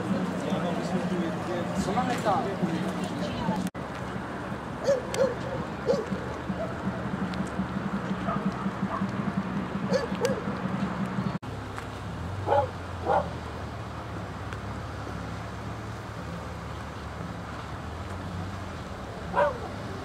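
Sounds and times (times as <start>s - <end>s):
dog barking: 4.8s - 6.8s, 8.2s - 9.1s, 9.9s - 10.4s, 12.5s - 13.4s, 19.3s - 19.8s.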